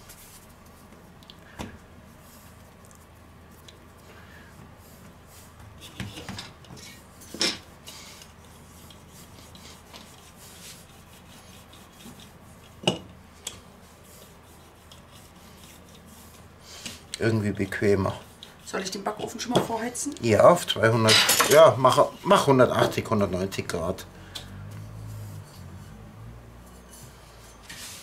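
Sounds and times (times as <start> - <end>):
rolling pin rubbing on dough: 1.8 - 20.9, 24.6 - 28.0.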